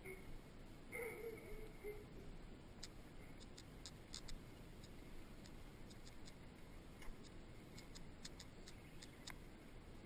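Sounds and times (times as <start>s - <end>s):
light high ticks: 2.8s - 9.4s.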